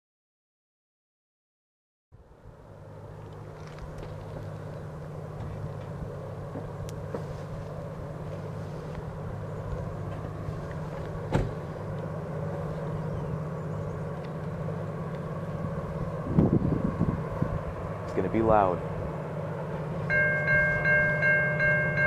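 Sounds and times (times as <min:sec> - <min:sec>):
locomotive engine drone: 0:02.2 - 0:22.0.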